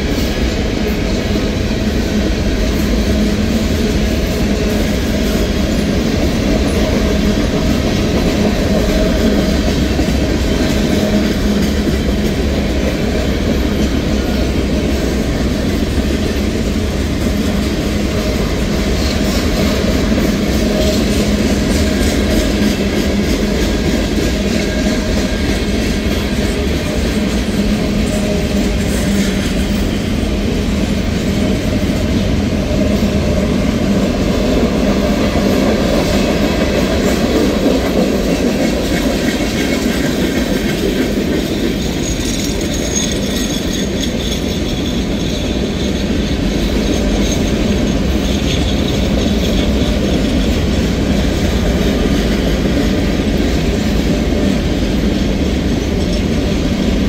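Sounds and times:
freight train rumbling past: 0:00.0 - 0:57.0
wheels clacking over rail joints: 0:00.0 - 0:57.0
high wheel squeal: 0:41.4 - 0:50.8.

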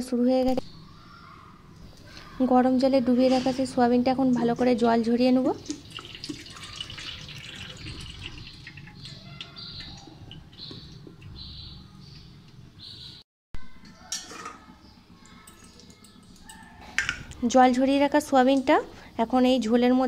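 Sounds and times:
birds chirping: 0:00.4 - 0:03.8, 0:05.5 - 0:13.2
faint dripping: 0:04.2 - 0:11.4.

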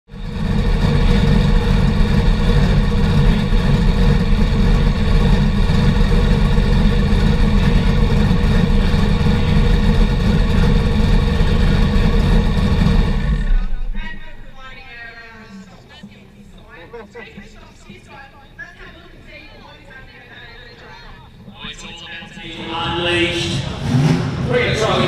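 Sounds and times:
car engine idling: 0:00.1 - 0:15.6, 0:21.3 - 0:25.0.

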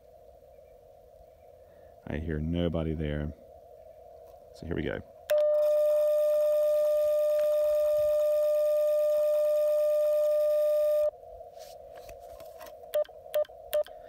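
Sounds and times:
faint receiver hiss: 0:05.2 - 0:11.1.

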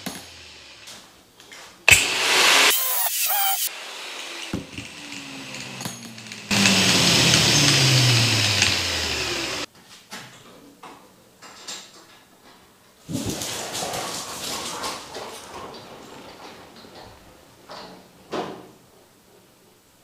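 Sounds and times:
angle grinder on metal: 0:00.0 - 0:00.9, 0:01.9 - 0:09.7.

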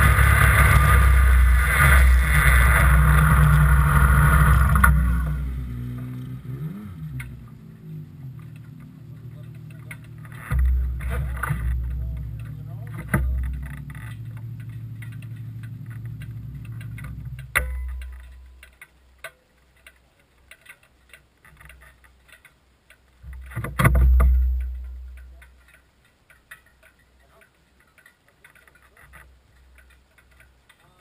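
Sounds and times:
engine idling: 0:00.0 - 0:18.6
faint ticks: 0:00.0 - 0:31.0.

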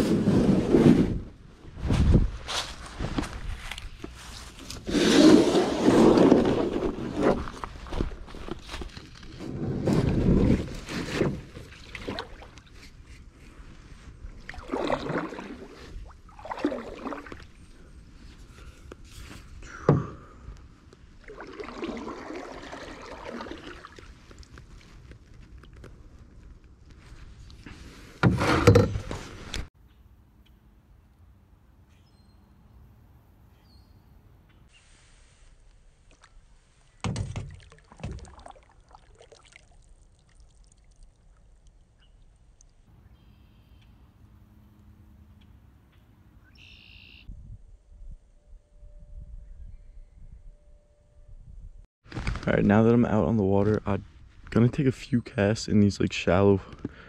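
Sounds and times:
paddle splashing in water: 0:09.4 - 0:13.2, 0:14.3 - 0:17.7, 0:21.2 - 0:25.8, 0:36.0 - 0:41.2.

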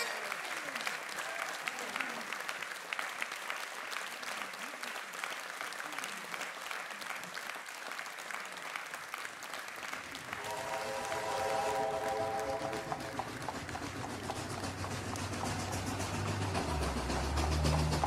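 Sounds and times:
audience applauding: 0:00.0 - 0:18.0
steady held chord: 0:10.3 - 0:13.2.

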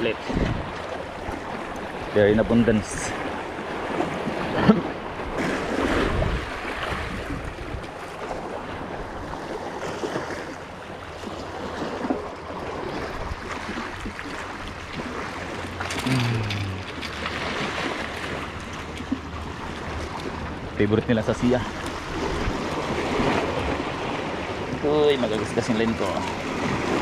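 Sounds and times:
wind buffeting microphone: 0:00.0 - 0:04.5, 0:05.1 - 0:09.4, 0:19.4 - 0:24.9
sea water lapping at shore: 0:00.0 - 0:27.0.

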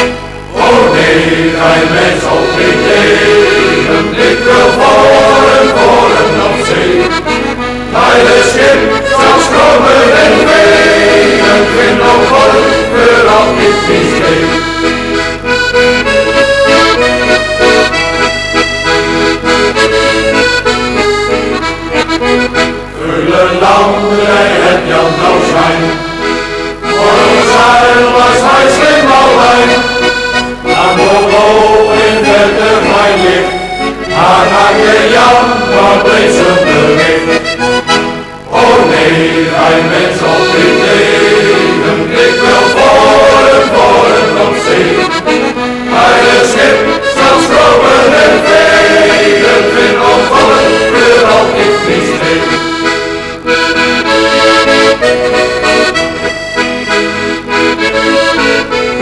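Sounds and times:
accordion melody: 0:00.0 - 0:59.0.

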